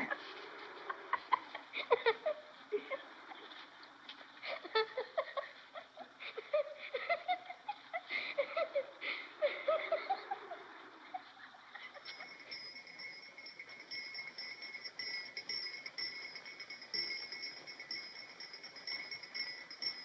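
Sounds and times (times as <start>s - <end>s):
shrill insect trill: 11.9s - 20.0s.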